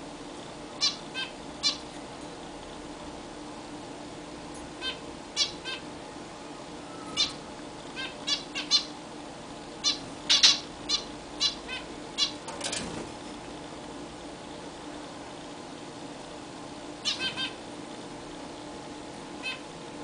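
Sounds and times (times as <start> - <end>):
zebra finches calling: 0.8 - 2.0, 4.8 - 5.9, 7.0 - 7.4, 8.0 - 9.0, 9.8 - 12.4, 17.0 - 17.6, 19.4 - 19.7.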